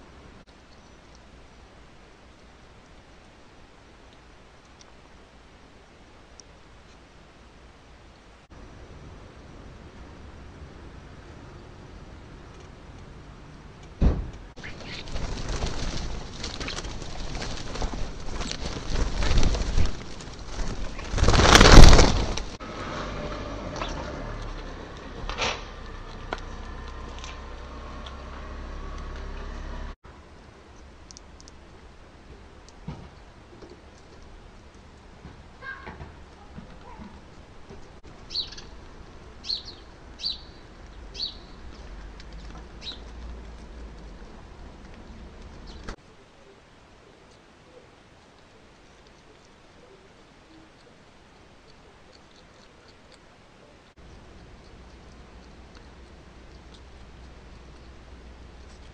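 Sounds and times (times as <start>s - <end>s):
birds flapping and scuffling: 14.5s - 22.6s
starlings calling: 14.6s - 15.4s, 38.3s - 38.8s, 39.4s - 41.7s, 42.8s - 43.1s
rush of wingbeats: 14.6s - 22.6s
low background rumble: 48.8s - 58.9s.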